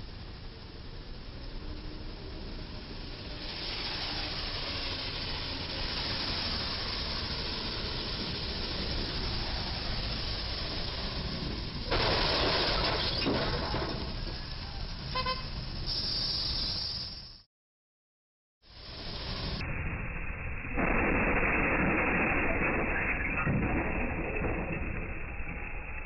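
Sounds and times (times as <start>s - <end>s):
tyres hissing on wet road: 0.4s - 17.4s, 18.7s - 19.6s
vehicle passing with tyre spray: 1.8s - 13.6s, 15.2s - 17.4s.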